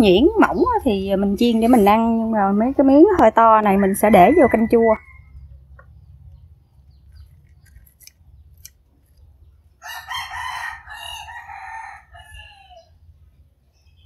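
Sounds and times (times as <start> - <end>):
rooster crowing: 3.7 - 5.5, 9.8 - 13.0.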